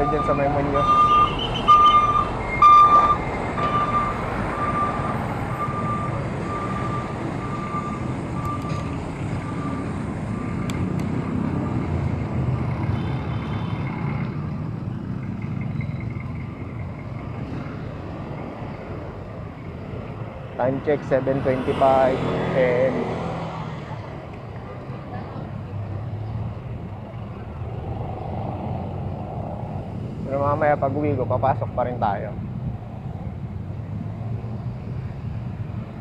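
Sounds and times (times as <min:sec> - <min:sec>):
reversing beeper: 0:00.0 - 0:10.0
passing vehicles: 0:00.0 - 0:36.0.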